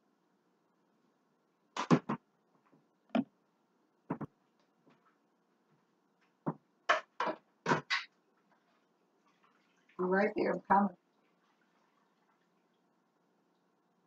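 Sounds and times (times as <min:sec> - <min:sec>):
kitchen knocks and clanks: 0:06.5 - 0:08.1.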